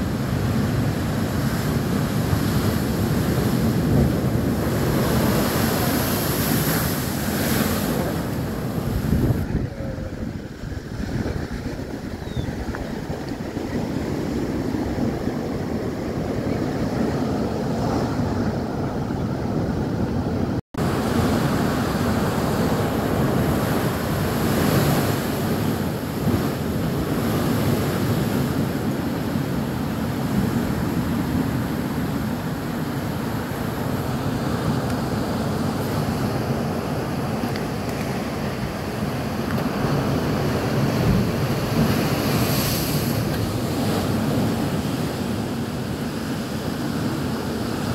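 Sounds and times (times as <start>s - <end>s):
waves breaking and pouring: 0.0s - 47.9s
surf rushing across street: 1.9s - 18.8s, 37.3s - 47.9s.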